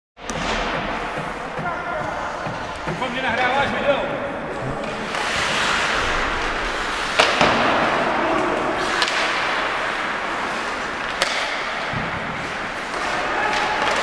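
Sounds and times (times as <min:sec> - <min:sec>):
ice rink noise: 0:00.2 - 0:14.0
hockey stick and puck cracks: 0:07.0 - 0:14.0.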